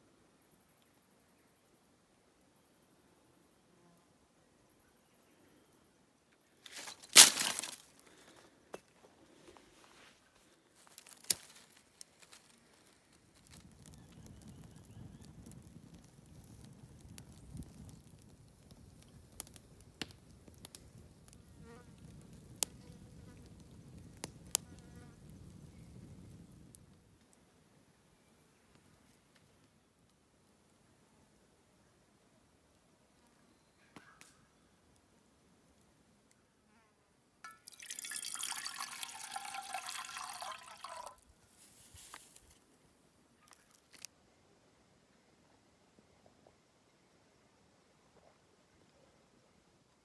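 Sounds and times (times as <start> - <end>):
low steady background noise: 0.0 - 50.0
faint rustle: 6.4 - 30.2, 41.3 - 44.2
water pouring into metal cup: 37.5 - 41.2.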